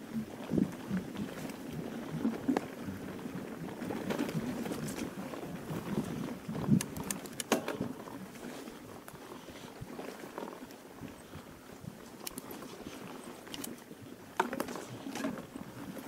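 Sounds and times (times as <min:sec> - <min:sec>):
bike tyres rumbling over grass: 0:00.0 - 0:16.0
sharp clicks and rattles: 0:06.6 - 0:07.9.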